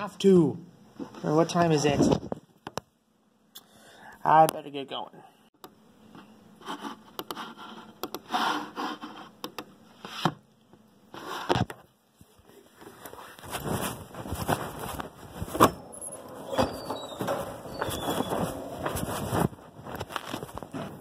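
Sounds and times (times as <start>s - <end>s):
fabric rubbing over microphone: 12.8s - 21.0s.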